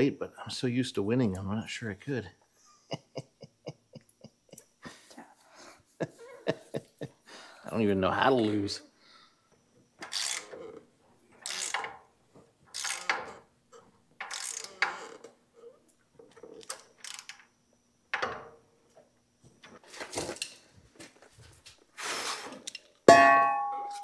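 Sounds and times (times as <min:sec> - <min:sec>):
ratchet wrench clicking: 0:10.0 - 0:10.5, 0:11.4 - 0:11.9, 0:12.7 - 0:13.3, 0:14.2 - 0:15.0, 0:16.7 - 0:17.4.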